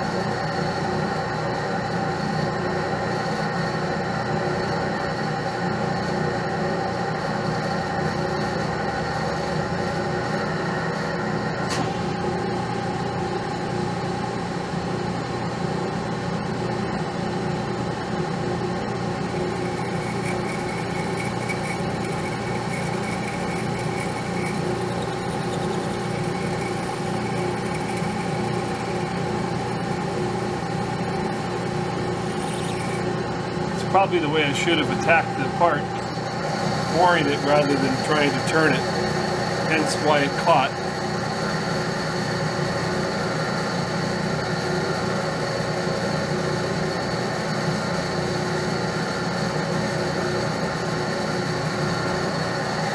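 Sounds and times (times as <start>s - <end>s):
metal lathe running: 0.0s - 52.9s.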